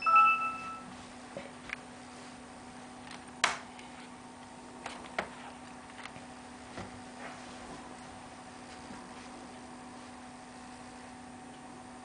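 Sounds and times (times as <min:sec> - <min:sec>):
short electronic tone: 0:00.0 - 0:00.9
faint steady hum: 0:00.0 - 0:12.0.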